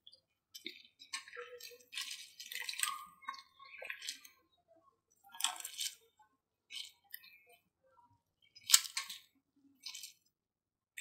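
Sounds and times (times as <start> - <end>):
noodles splashing in boiling water: 0.0 - 4.6, 8.4 - 10.4.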